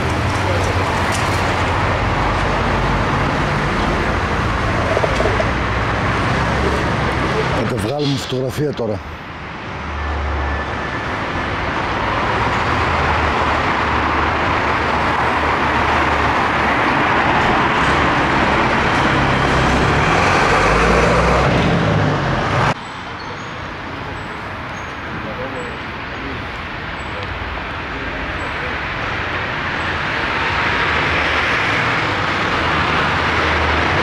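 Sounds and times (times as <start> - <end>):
quiet street background: 0.0 - 34.0
road traffic rumble: 0.0 - 34.0.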